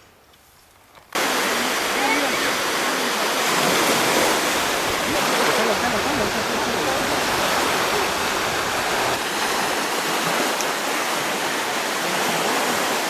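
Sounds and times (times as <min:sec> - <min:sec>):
strong wind: 0:01.2 - 0:13.0
water washing onto pebble beach: 0:01.2 - 0:13.0.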